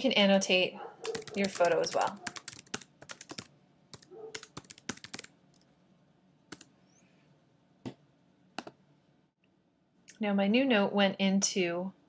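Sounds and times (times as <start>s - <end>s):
keyboard typing: 1.0s - 5.3s, 6.5s - 6.7s.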